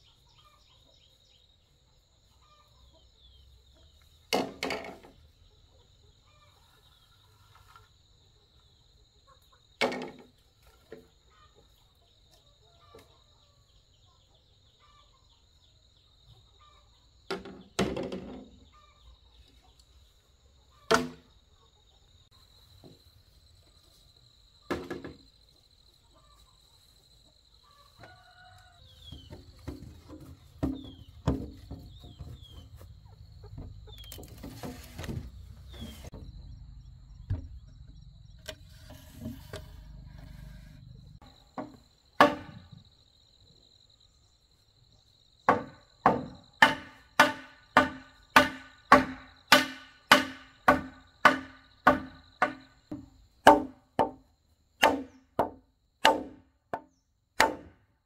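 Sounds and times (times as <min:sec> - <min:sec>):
chickens clucking: 0:02.2 - 0:04.2, 0:05.1 - 0:09.8, 0:25.5 - 0:36.6
low rumble: 0:36.2 - 0:38.5
sharp knocks: 0:41.6 - 0:42.7, 0:45.5 - 0:54.2, 0:54.8 - 0:57.8.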